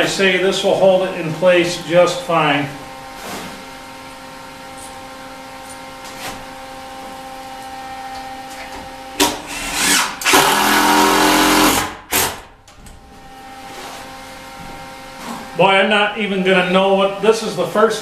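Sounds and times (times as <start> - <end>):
cordless drill driving screws: 9.5 - 12.4.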